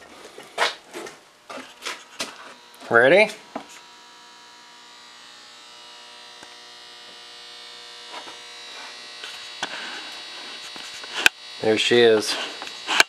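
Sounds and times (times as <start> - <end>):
electrical buzzing hum: 0.0 - 13.0.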